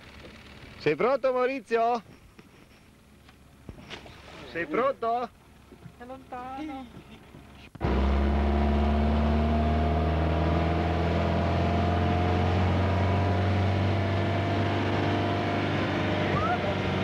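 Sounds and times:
speedboat engine running hard: 0:11.8 - 0:17.0.

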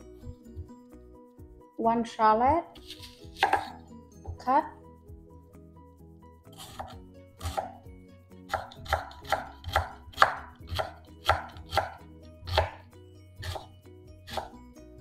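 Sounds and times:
knife cutting on cutting board: 0:02.8 - 0:03.8, 0:06.5 - 0:07.8, 0:08.5 - 0:12.8, 0:13.4 - 0:13.7, 0:14.3 - 0:14.5.

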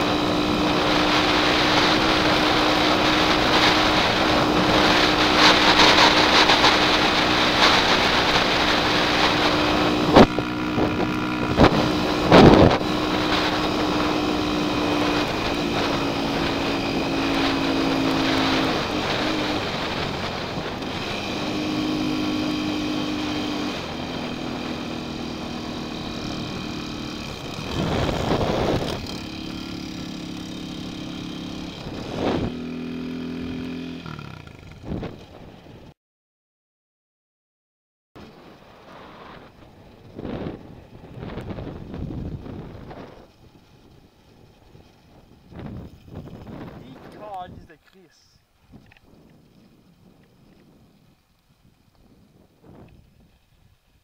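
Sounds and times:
dirt bike engine running: 0:00.0 - 0:35.9, 0:38.2 - 0:54.0
wind rushing over microphone: 0:00.0 - 0:35.9, 0:38.2 - 0:54.0.

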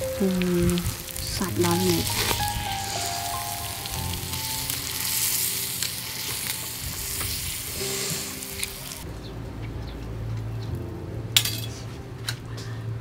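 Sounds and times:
clams sizzling on a grill: 0:00.0 - 0:09.0.

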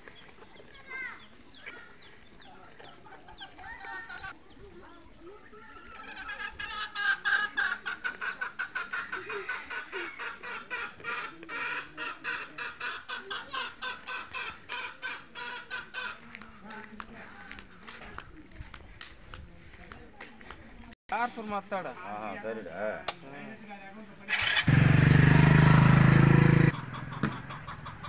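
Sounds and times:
chickens clucking: 0:05.7 - 0:19.8, 0:25.3 - 0:28.0.

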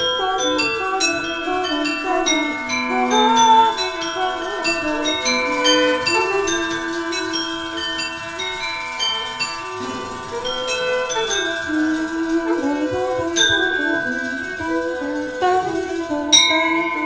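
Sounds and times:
woman singing softly: 0:00.0 - 0:08.6
high bell-like tinkling notes: 0:00.0 - 0:17.0
violin bowing long notes: 0:00.0 - 0:17.0.

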